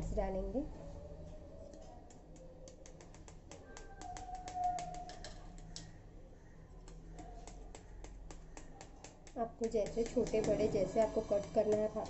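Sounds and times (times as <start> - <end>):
knife clicking against pot: 1.7 - 6.0.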